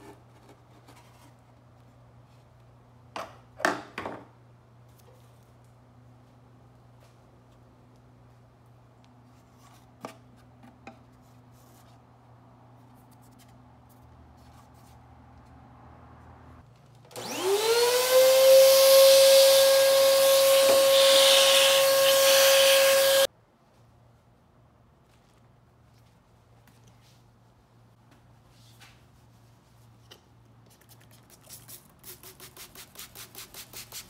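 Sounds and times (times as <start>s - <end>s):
vacuum cleaner running: 17.1s - 23.3s.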